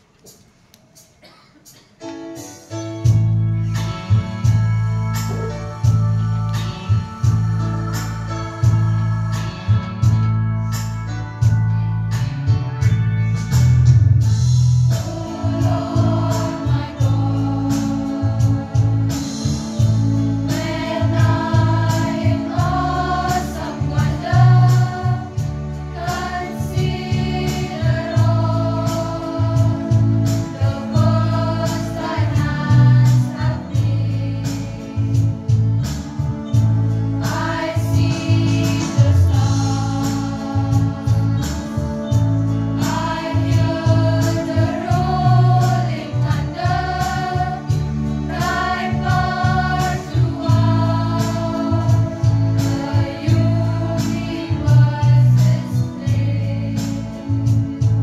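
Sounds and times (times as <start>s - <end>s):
girls' choir singing a hymn: 5.3s - 10.3s, 14.9s - 58.0s
low accompanying notes: 14.3s - 56.6s.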